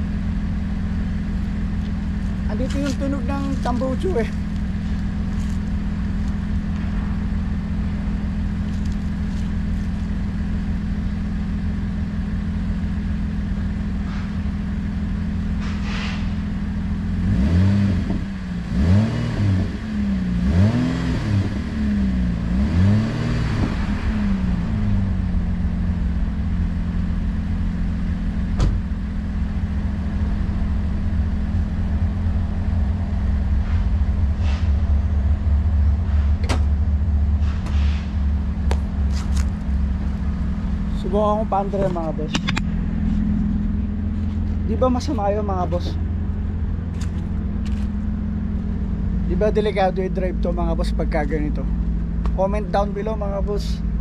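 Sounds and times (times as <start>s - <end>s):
car engine revving with broken exhaust: 0.0s - 54.0s
sharp click: 42.3s - 42.7s.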